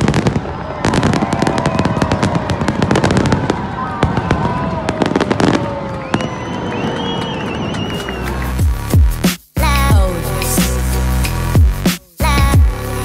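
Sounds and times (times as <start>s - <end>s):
fireworks bangs and crackling: 0.0s - 8.6s.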